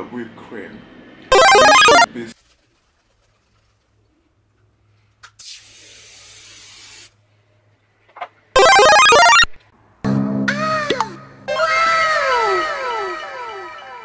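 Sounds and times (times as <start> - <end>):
musical sound effect: 1.3 - 2.1, 8.6 - 9.5, 11.5 - 14.0
aerosol whipped cream spraying: 5.4 - 7.1.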